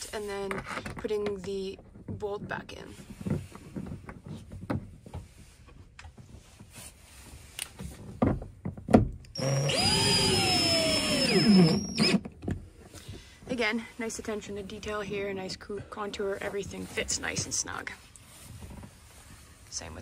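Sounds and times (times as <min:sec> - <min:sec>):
cordless drill driving bolt: 0:09.4 - 0:12.3.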